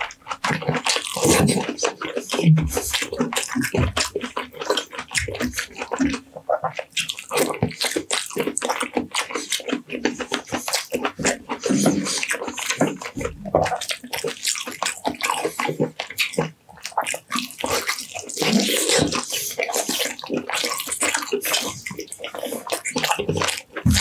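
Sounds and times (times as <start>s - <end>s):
clicking mouth noises: 0.0s - 24.0s
lip smacking: 0.0s - 24.0s
wet chewing: 0.0s - 24.0s.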